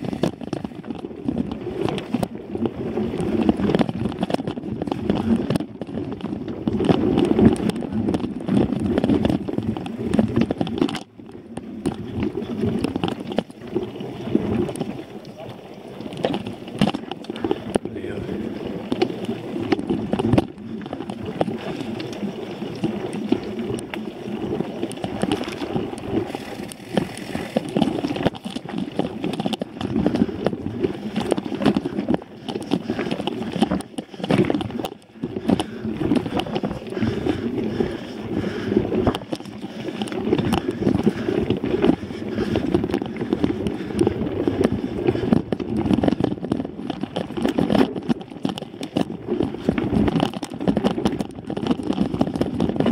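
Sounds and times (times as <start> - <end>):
wind rush over microphone: 0.0 - 15.1, 16.2 - 52.9
bike rattling and knocking: 0.0 - 52.9.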